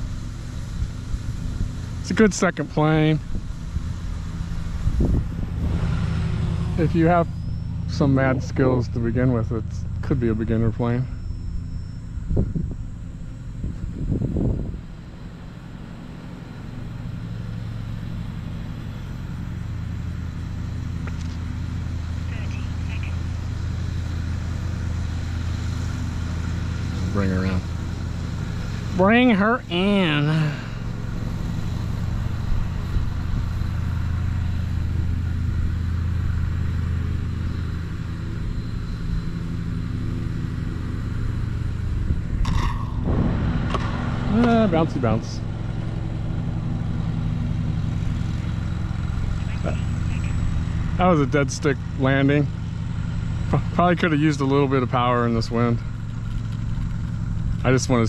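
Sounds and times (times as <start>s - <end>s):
electric motor and propeller drone: 0.0s - 58.0s
rushing wind: 3.2s - 7.8s, 12.1s - 15.6s, 40.9s - 49.4s.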